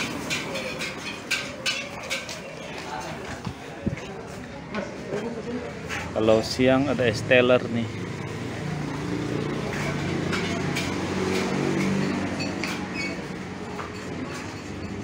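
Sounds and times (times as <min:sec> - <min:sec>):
dishes clinking: 0:00.0 - 0:02.8, 0:09.8 - 0:15.0
passing vehicle engine hum: 0:06.0 - 0:15.0.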